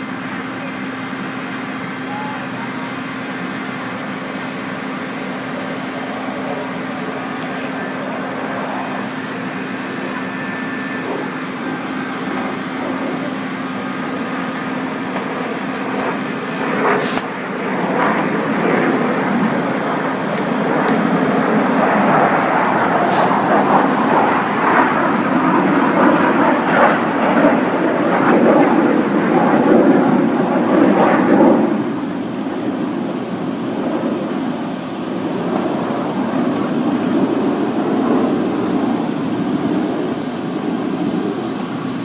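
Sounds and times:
engine humming: 0:00.0 - 0:42.0
sharp snap: 0:17.0 - 0:17.3.

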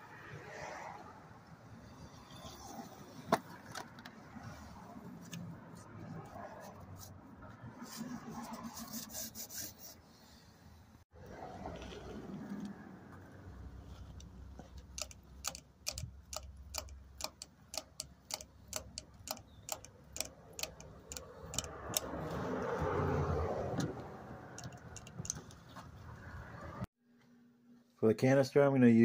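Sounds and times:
oil can pump clicking: 0:14.8 - 0:22.2, 0:24.6 - 0:25.5.

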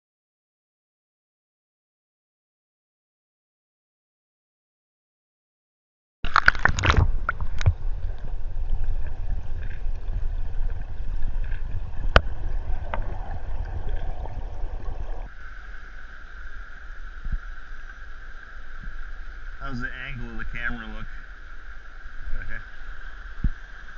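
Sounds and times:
muffled underwater river rushing: 0:06.3 - 0:23.9.

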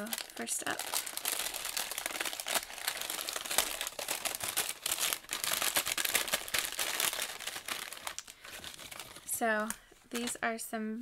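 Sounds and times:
paper bag crinkling: 0:00.0 - 0:10.4.

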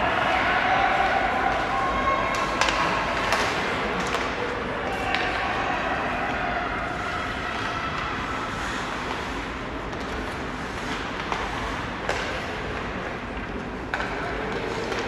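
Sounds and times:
hockey sticks and puck clacking: 0:00.1 - 0:06.4, 0:07.2 - 0:15.0
skate blades scraping ice: 0:08.1 - 0:13.0.

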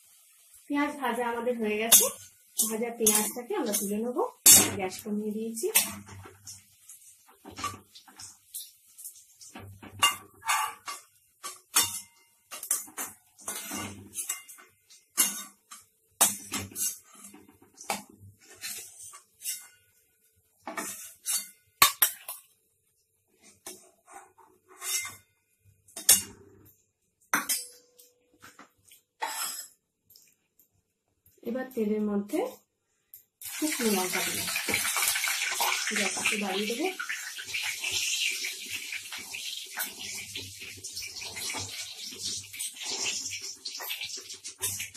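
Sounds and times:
spoon scraping pan: 0:05.7 - 0:20.0, 0:20.7 - 0:22.4, 0:23.4 - 0:25.2, 0:33.7 - 0:44.9.

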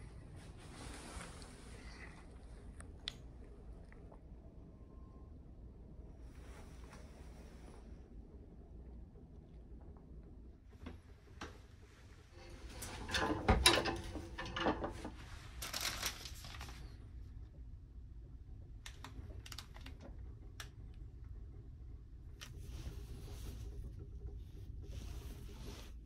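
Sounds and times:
low steady hum: 0:00.0 - 0:26.0
plastic wrapping crinkling: 0:15.4 - 0:17.0.

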